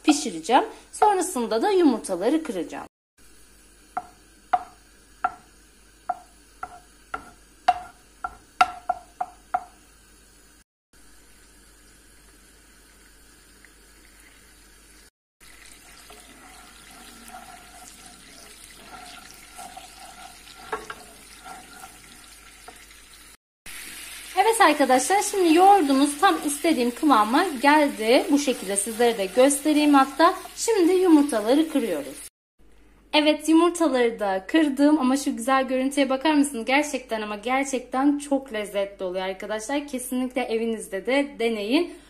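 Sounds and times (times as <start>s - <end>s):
yogurt sizzling in a frying pan: 3.2s - 32.3s
wooden spoon stirring: 15.6s - 23.2s.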